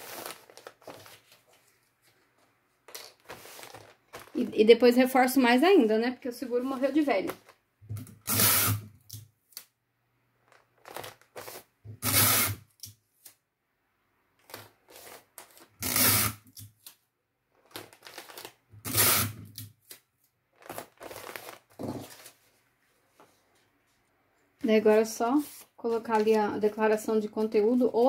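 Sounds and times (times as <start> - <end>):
plastic bag rustling: 0.0 - 4.6, 10.5 - 11.7, 17.6 - 18.6, 20.5 - 22.7
adhesive tape ripping: 8.2 - 9.7, 10.8 - 13.4, 15.0 - 17.0, 17.7 - 20.0.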